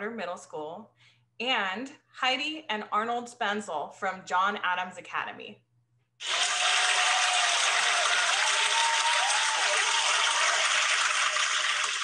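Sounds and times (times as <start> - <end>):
crowd applause and cheering: 6.2 - 12.0.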